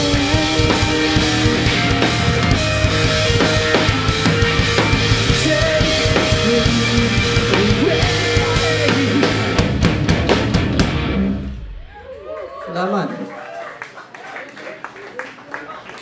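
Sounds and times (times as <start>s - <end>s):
distorted guitars: 0.0s - 12.2s
heavy rock band playing: 0.0s - 12.2s
drum kit: 0.0s - 12.3s.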